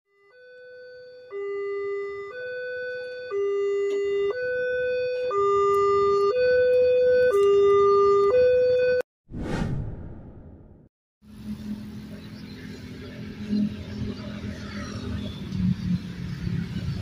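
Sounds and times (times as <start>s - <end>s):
level crossing warning alarm: 0.1s - 9.0s.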